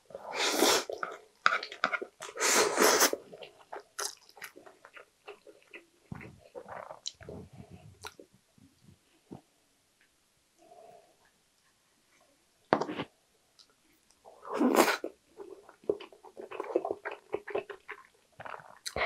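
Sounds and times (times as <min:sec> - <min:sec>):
person slurping noodles: 0:00.2 - 0:01.2, 0:02.2 - 0:03.2, 0:14.4 - 0:15.1.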